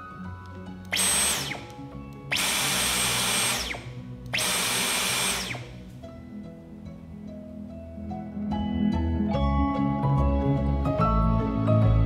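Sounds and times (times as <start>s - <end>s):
motor spinning down whine: 0.9s - 6.0s
vacuum cleaner motor bursts: 0.9s - 6.0s.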